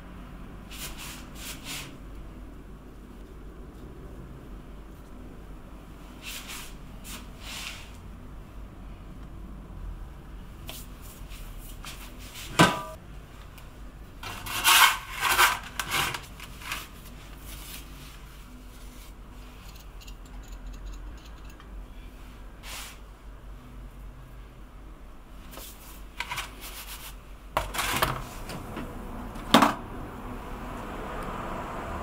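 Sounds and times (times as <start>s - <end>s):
metal peel scraping wooden board: 14.2s - 16.9s
rubbing and handling noise: 14.2s - 20.0s, 25.4s - 28.5s.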